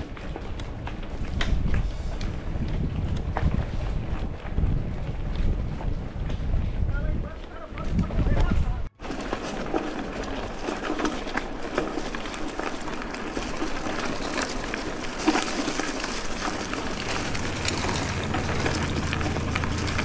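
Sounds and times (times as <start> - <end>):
dry leaves and twigs crunching: 9.0 - 20.0.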